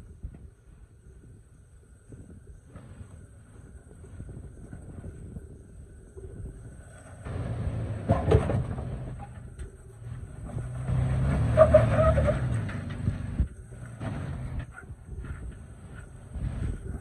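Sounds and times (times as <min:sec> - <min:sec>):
suv engine working: 0:06.1 - 0:17.0.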